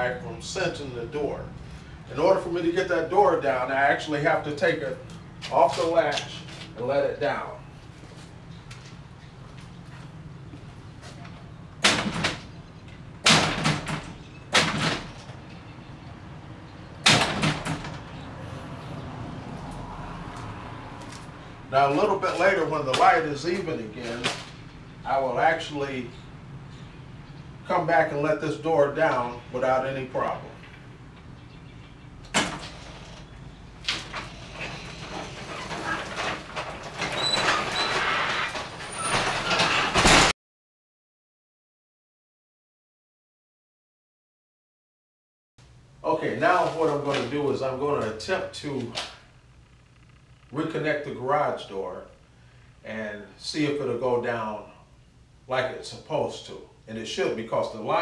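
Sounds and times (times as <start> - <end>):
garage door hardware rattling: 13.2 - 15.7, 17.0 - 18.2, 32.3 - 40.3.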